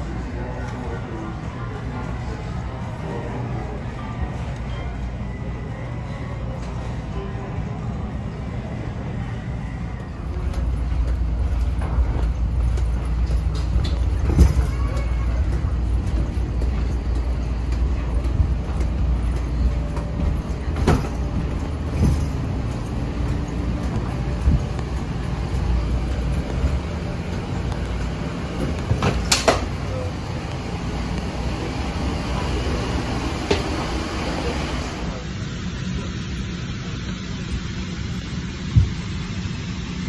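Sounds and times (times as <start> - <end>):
faint murmur of voices: 0.0 - 37.9
cabin low hum: 8.1 - 40.0.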